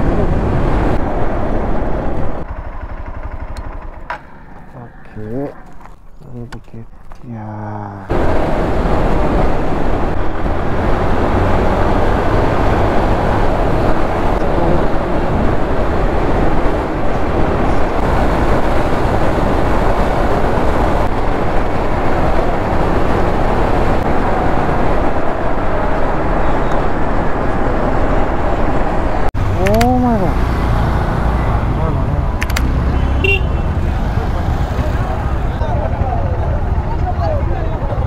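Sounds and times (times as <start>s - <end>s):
wind rushing over microphone: 0.0s - 2.5s, 8.1s - 38.0s
road noise: 0.0s - 38.0s
motorcycle engine: 0.7s - 6.2s, 28.2s - 38.0s.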